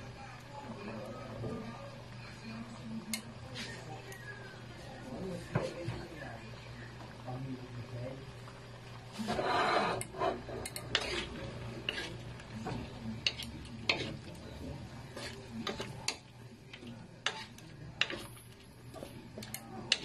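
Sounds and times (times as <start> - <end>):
spatula scraping and knocking pan: 9.1 - 20.0.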